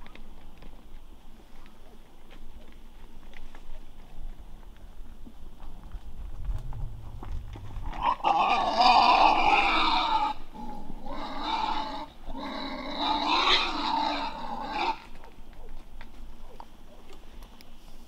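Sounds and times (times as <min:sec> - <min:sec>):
wild boar squealing and growling: 0:07.6 - 0:15.1.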